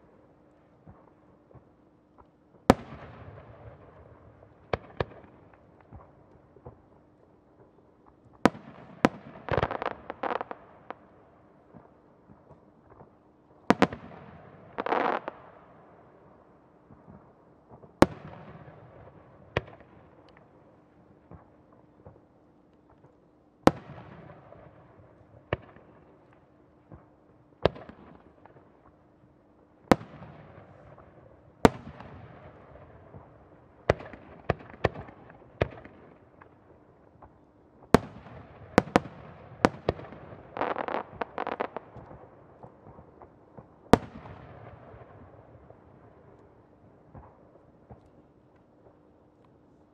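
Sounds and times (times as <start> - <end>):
firework crackling: 14.8 - 15.3, 40.5 - 42.0.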